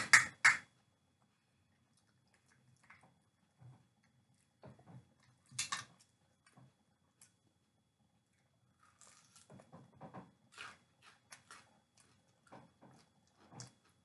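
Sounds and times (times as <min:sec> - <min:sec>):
child chewing a snack: 0:08.3 - 0:09.8, 0:10.4 - 0:14.0.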